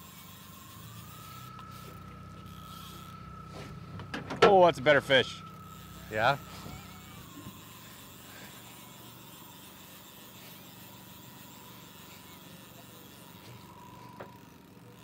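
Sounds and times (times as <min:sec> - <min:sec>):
outboard motor running slowly: 0:00.0 - 0:15.0.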